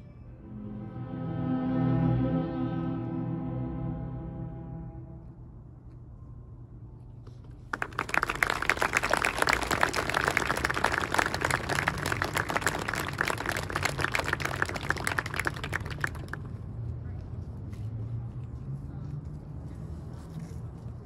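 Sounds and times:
audience applauding: 7.7 - 16.5.

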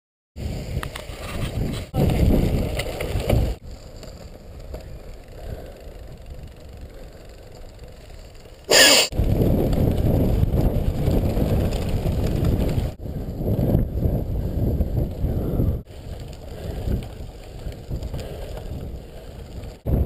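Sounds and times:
bicycle tyres on gravel: 0.4 - 20.0
harsh burst of noise: 8.7 - 9.1.

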